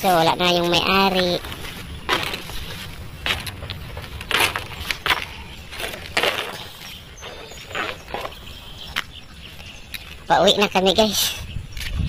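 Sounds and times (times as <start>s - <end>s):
footsteps crunching on dirt: 0.0s - 10.3s
low microphone rumble: 0.8s - 9.9s.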